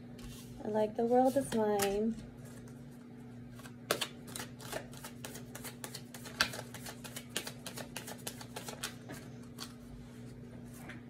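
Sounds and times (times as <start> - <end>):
cards being shuffled: 3.5 - 9.9.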